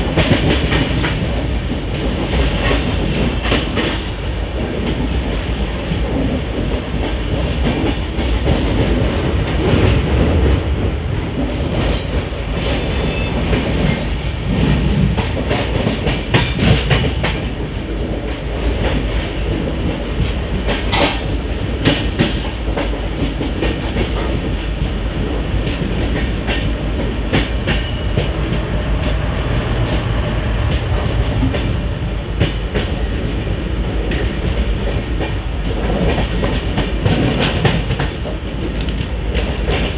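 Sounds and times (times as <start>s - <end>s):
sharp clacks of train track: 0.0s - 39.9s
train wheels rumbling on rail: 0.0s - 39.9s.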